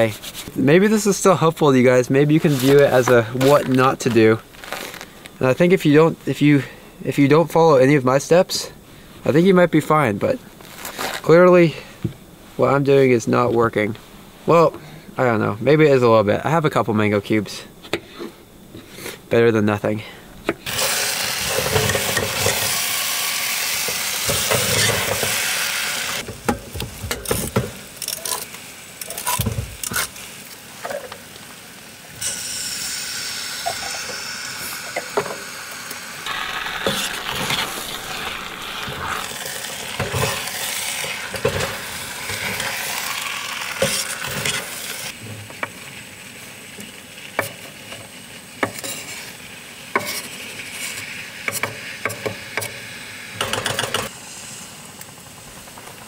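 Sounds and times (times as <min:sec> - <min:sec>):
food sizzling in a pot: 0:20.6 - 0:55.8.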